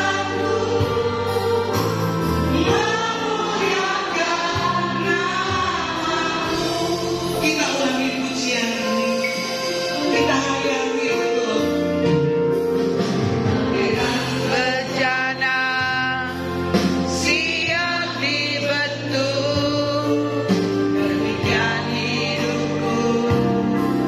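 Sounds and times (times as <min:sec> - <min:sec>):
voices singing with vibrato: 0:00.0 - 0:11.6, 0:13.6 - 0:16.4.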